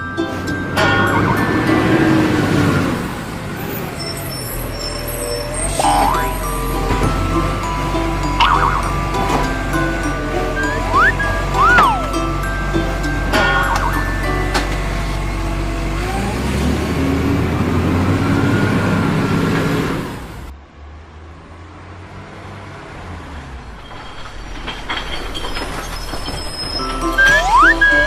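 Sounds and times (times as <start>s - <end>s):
toy truck motor whirring: 10.6s - 12.6s.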